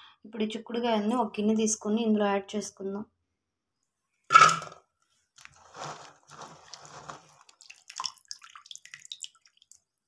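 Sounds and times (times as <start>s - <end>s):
pods crunching and rustling: 5.4s - 7.8s.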